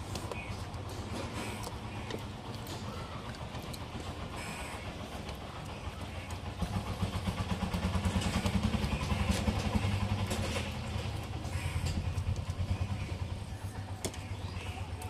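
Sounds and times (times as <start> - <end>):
vehicle engine hum passing: 0.0 - 15.0
small scattered clicks: 0.1 - 4.3.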